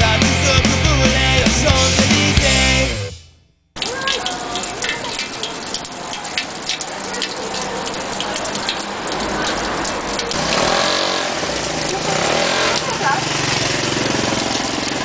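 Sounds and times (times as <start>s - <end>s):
fountain water splashing into basin: 3.8s - 15.0s.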